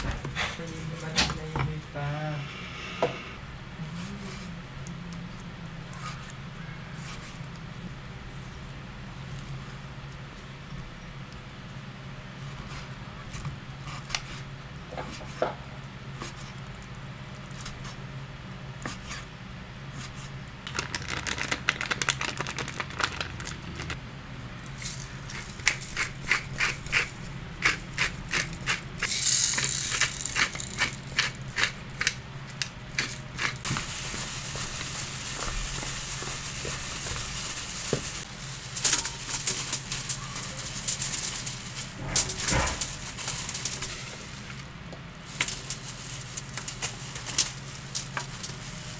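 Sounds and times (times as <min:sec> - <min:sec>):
steady low hum: 0:00.0 - 0:20.8, 0:21.6 - 0:48.9
paper and plastic crinkling: 0:20.6 - 0:24.0, 0:33.0 - 0:48.9.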